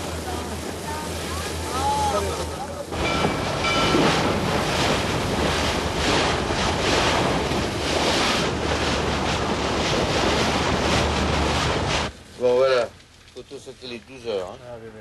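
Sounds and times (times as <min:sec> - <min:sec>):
waves breaking along ship hull: 0:00.0 - 0:12.6.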